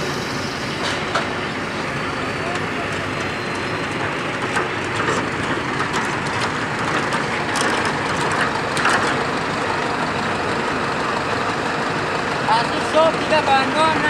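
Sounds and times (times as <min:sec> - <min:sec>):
mechanical din of machinery: 0:02.4 - 0:09.4.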